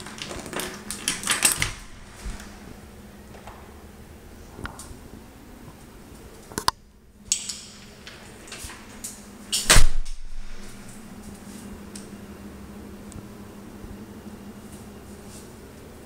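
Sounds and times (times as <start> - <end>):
door shutting with heavy thump: 9.6 - 10.7.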